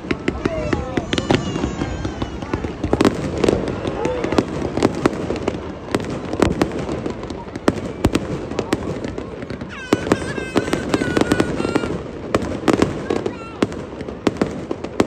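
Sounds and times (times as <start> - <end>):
fireworks bangs: 0.0 - 15.0.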